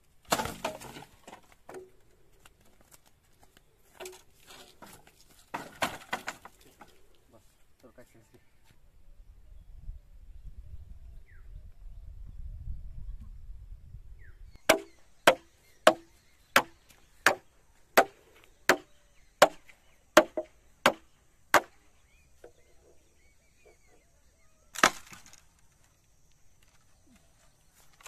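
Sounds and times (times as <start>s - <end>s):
rough crack: 0.2s - 7.0s, 24.7s - 25.9s
blade chopping bamboo: 0.3s - 1.8s, 14.7s - 17.4s, 18.0s - 21.8s, 24.8s - 25.4s.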